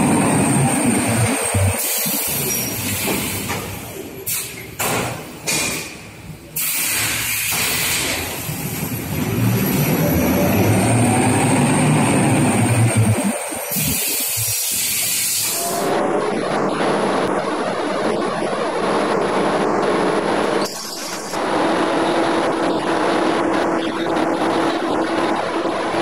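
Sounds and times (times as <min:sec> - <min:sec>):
rewinding machine running: 0:00.0 - 0:02.8.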